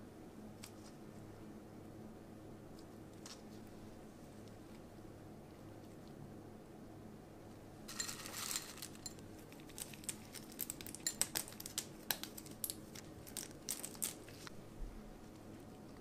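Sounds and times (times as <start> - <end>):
chocolate flakes crackling: 7.9 - 14.6.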